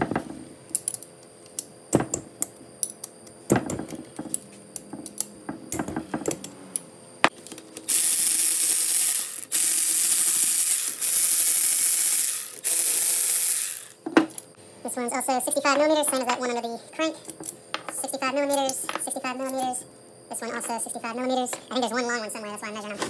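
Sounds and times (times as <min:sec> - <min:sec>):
ratchet wrench ratcheting: 0:07.8 - 0:14.0.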